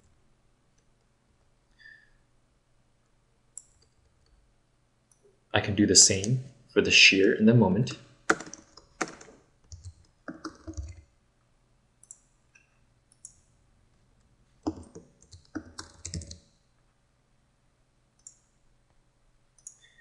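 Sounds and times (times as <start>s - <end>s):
keyboard typing: 8.3s - 11.1s, 14.6s - 16.4s.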